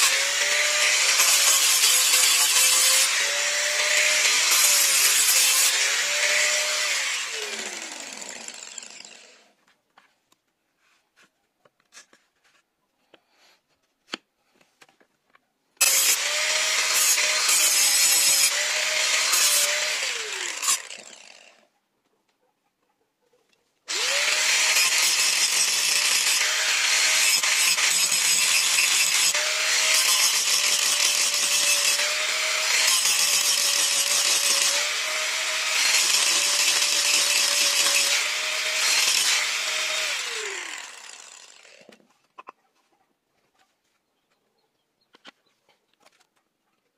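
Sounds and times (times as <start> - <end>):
angle grinder grinding steel: 0.0 - 9.5, 15.8 - 21.6, 23.9 - 42.0.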